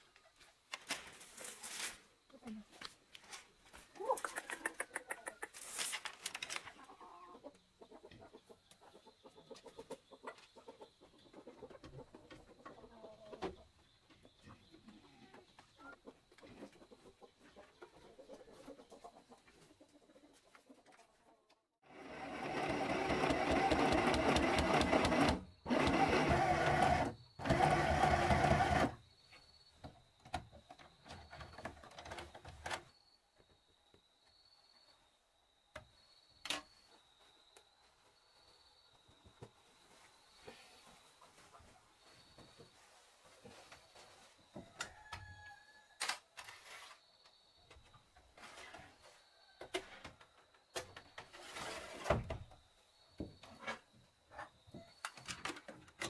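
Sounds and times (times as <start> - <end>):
chickens clucking: 4.0 - 5.7, 6.6 - 21.6, 39.9 - 45.1
electric sewing machine stitching: 21.9 - 29.0.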